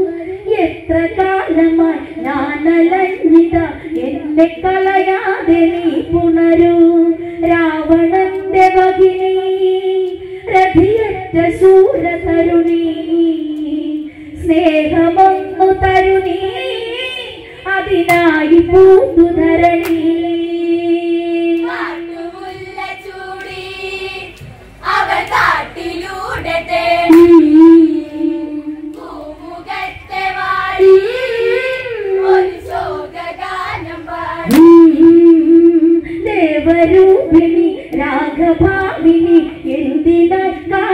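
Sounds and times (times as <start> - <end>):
women singing into microphone: 0.0 - 40.9
hand claps: 19.8 - 20.0.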